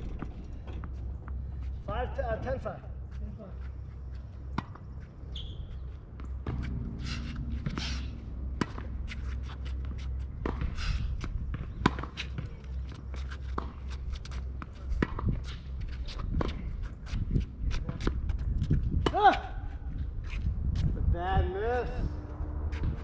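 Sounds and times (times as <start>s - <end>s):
low rumble: 0.0s - 2.0s
shoes scuffing on court: 0.1s - 21.0s
ball bouncing on court: 14.6s - 15.3s.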